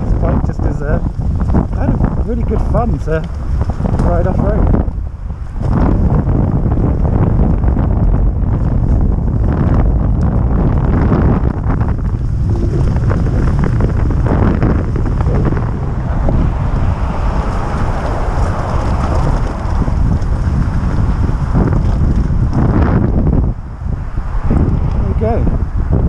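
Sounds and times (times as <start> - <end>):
wind buffeting microphone: 0.0 - 26.0
tyre noise on gravel: 10.6 - 23.2.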